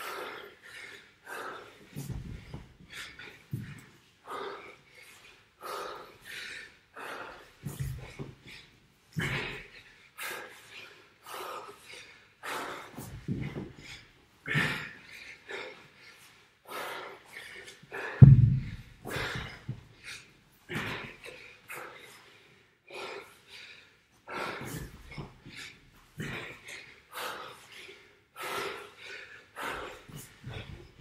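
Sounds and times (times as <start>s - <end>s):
man breathing hard: 0.0s - 31.0s
heavy low thud: 18.2s - 19.6s.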